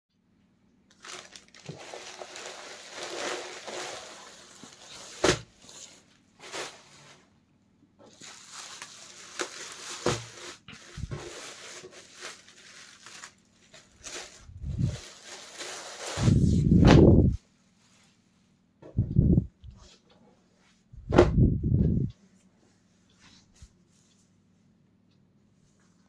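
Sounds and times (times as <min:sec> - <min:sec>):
plastic packaging crinkling: 0:00.9 - 0:07.1, 0:08.1 - 0:17.3.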